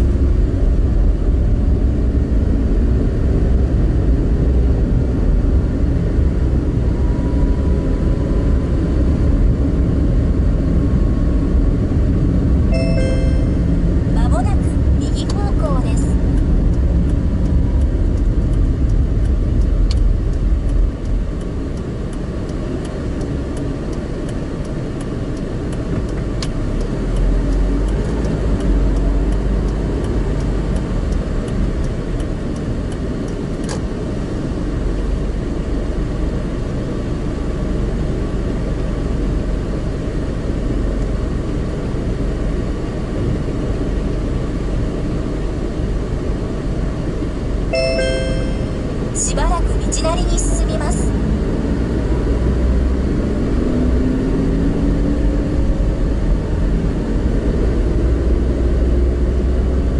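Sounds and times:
car tyre and engine rumble: 0:16.2 - 0:47.6.

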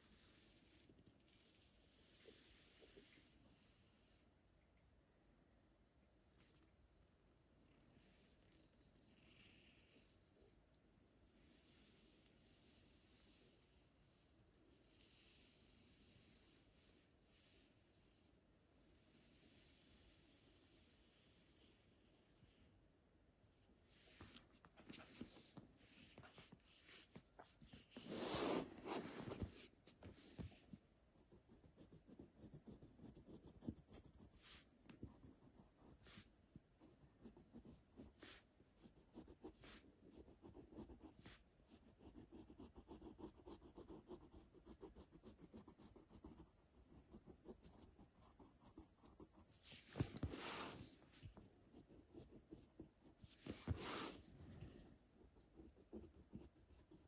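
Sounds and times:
pencil scratching on paper: 0:31.2 - 0:54.3, 0:55.2 - 0:57.0.

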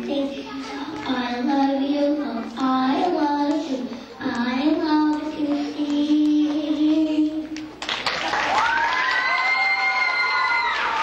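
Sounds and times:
boy singing into microphone: 0:00.0 - 0:07.7.

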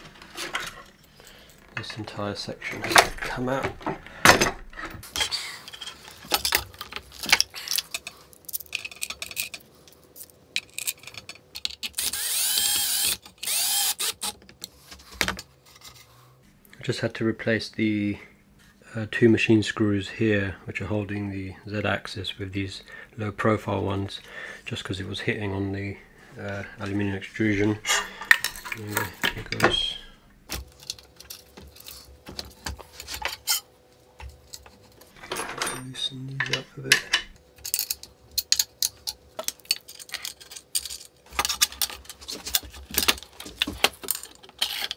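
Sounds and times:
clicks and knocks of parts handled: 0:02.8 - 0:13.6, 0:30.5 - 0:44.9
cordless drill driving screws: 0:12.0 - 0:14.4.

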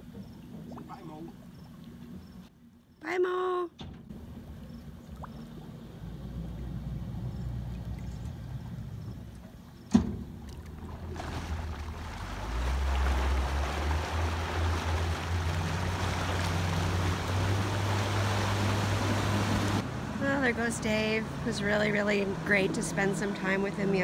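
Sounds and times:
water churning: 0:04.1 - 0:19.9
outboard motor idling: 0:04.1 - 0:24.0
sharp clunk: 0:09.9 - 0:10.3.

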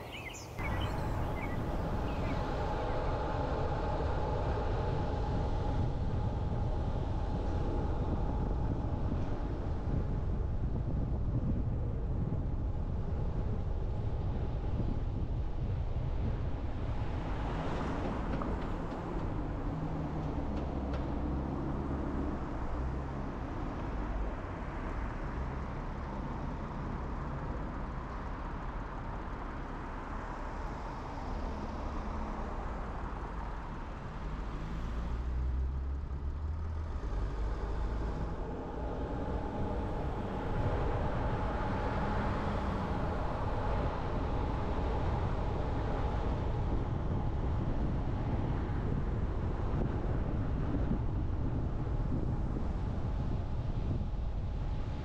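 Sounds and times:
tyre road noise: 0:00.0 - 0:55.0.

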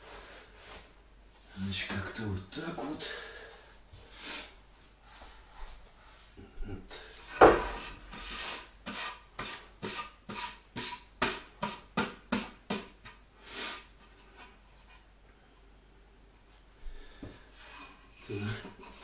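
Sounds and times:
wooden board knock: 0:07.4 - 0:07.8.

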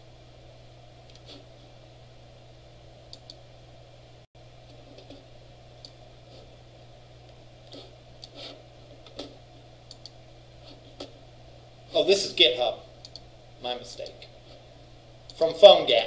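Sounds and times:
steady low hum: 0:00.0 - 0:16.0
computer mouse clicks: 0:01.1 - 0:01.4, 0:03.1 - 0:03.4, 0:07.6 - 0:08.5, 0:09.1 - 0:10.2, 0:13.0 - 0:13.3.

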